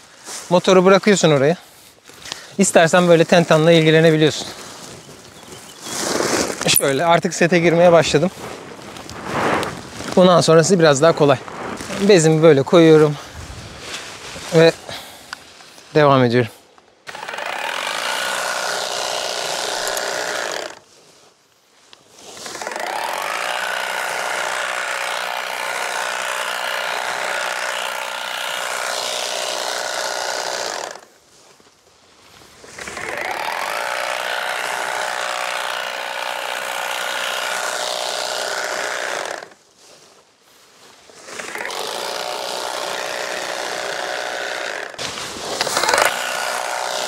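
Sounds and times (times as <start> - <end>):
electric tea harvesting machine running: 17.1 - 20.6, 22.5 - 30.7, 33.0 - 39.3, 41.5 - 47.0.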